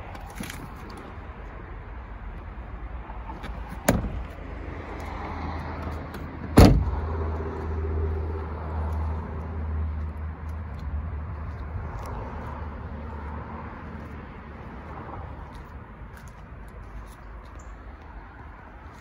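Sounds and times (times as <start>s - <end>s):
car door slamming: 3.4s - 4.4s, 6.4s - 7.1s.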